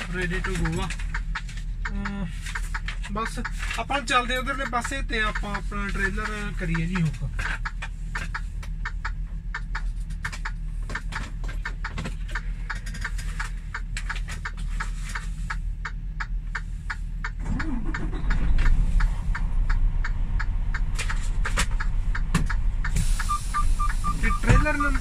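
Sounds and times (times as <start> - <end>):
rapid sharp clicks: 0.0 - 14.6
diesel truck engine idling: 0.0 - 25.0.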